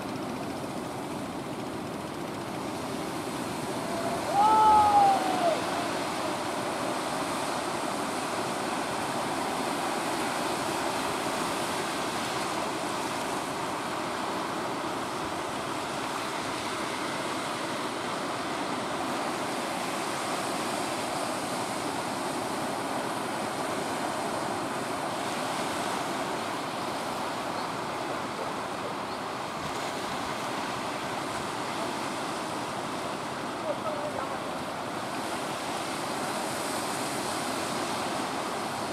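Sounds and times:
surf breaking on beach: 0:02.8 - 0:14.5.

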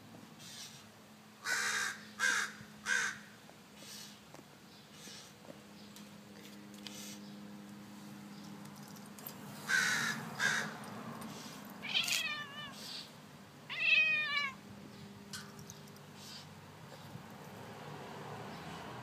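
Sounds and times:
crow cawing: 0:01.4 - 0:03.4, 0:09.7 - 0:10.8
cat meowing: 0:11.8 - 0:13.1, 0:13.7 - 0:14.6.

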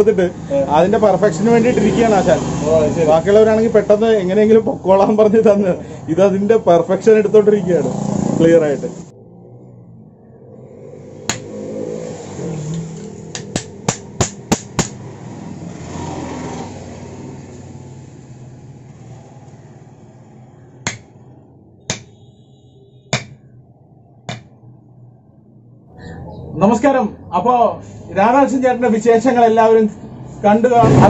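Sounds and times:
hammer striking metal on anvil: 0:11.3 - 0:11.5, 0:13.3 - 0:15.0, 0:20.8 - 0:21.1, 0:21.9 - 0:22.2, 0:23.1 - 0:23.4, 0:24.3 - 0:24.5.

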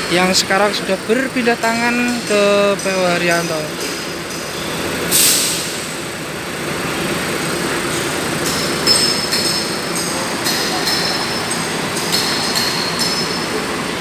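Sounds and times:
bus engine running: 0:00.0 - 0:14.0
air hiss: 0:05.1 - 0:06.0.

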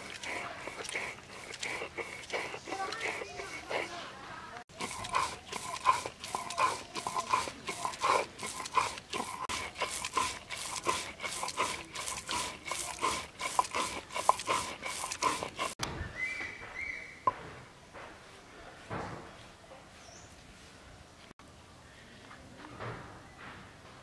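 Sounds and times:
stone roller grinding on slab: 0:00.0 - 0:04.0, 0:04.7 - 0:15.8.

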